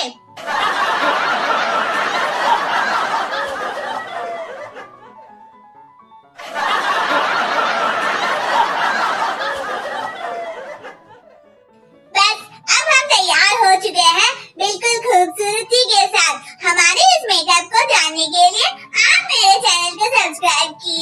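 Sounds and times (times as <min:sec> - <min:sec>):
audience laughter: 0:00.4 - 0:05.6, 0:06.4 - 0:11.6.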